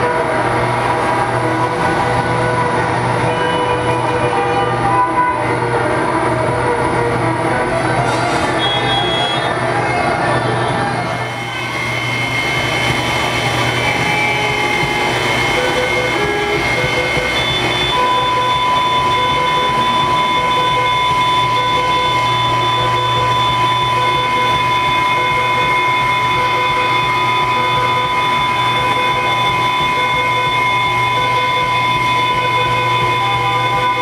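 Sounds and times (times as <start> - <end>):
field recording samples: 0.0 - 34.0
electric violin: 1.5 - 23.1
held electronic tones: 11.2 - 34.0.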